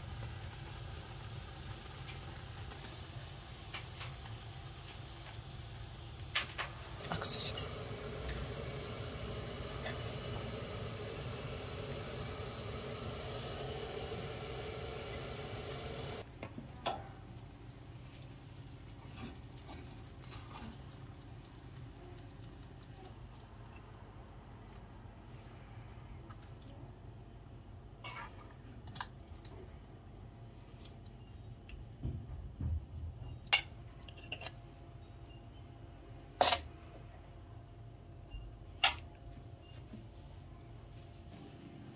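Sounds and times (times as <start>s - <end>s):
steady hiss: 0.0s - 16.2s.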